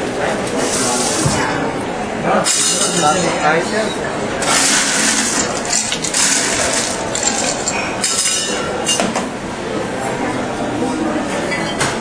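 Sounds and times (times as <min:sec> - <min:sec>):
ice cubes and glassware clinking: 0:04.5 - 0:08.6.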